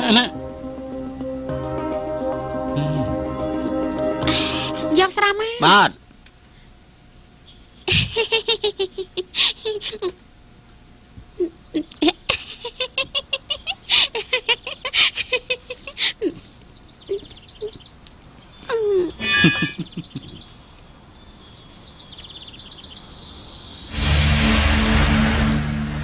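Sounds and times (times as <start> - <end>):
woman laughing heartily: 7.9 - 10.2, 11.4 - 16.5, 18.8 - 20.5.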